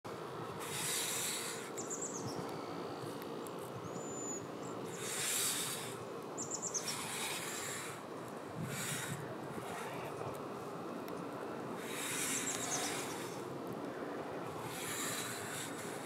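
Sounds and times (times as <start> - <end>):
outdoor background hiss: 0.1 - 16.0
small birds chirping: 0.6 - 16.0
bird whistle: 3.9 - 5.7, 6.4 - 7.2.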